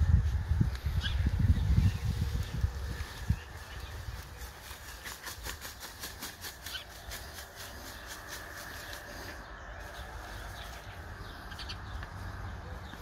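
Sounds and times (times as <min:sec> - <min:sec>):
steady low rumble: 0:00.0 - 0:05.0.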